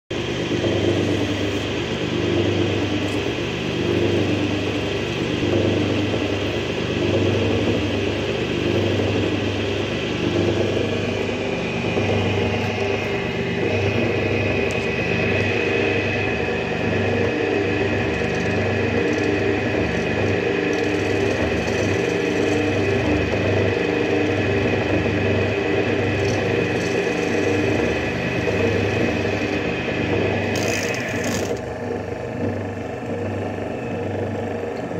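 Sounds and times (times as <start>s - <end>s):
lathe motor hum: 0.1s - 34.9s
high-pitched whine: 7.6s - 34.3s
cutting tool scraping: 26.2s - 28.0s, 30.4s - 31.6s.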